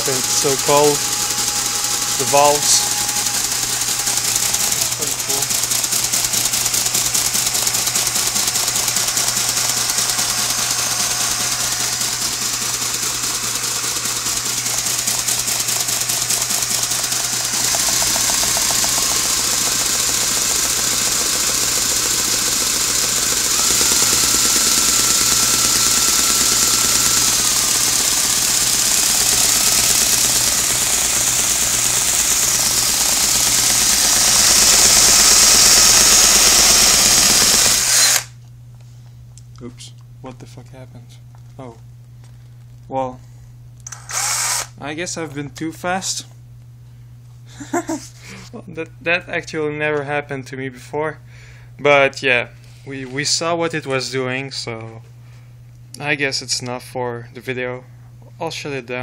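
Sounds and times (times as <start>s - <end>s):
electric drill whirring: 0.0s - 38.4s, 43.8s - 44.8s.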